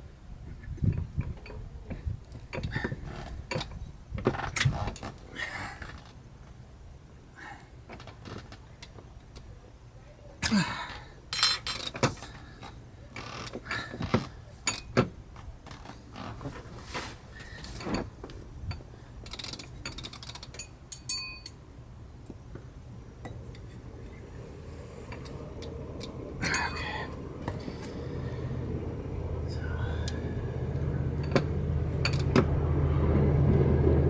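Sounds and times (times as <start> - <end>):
metal winch parts clinking: 11.3 - 15.1, 17.6 - 21.6, 25.1 - 27.7, 30.7 - 32.5.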